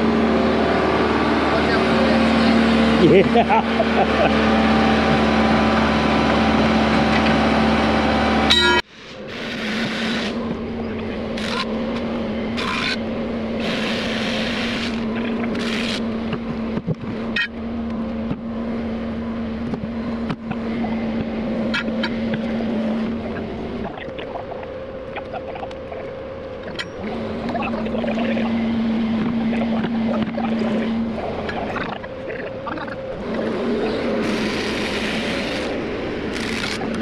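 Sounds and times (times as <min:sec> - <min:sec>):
excavator diesel engine running: 0:00.0 - 0:37.0
hiss bursts: 0:13.6 - 0:15.0.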